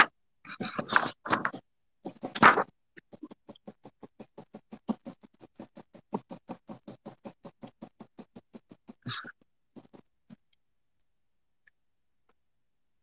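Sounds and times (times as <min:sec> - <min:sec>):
paintbrush tapping on canvas: 0:00.5 - 0:10.4.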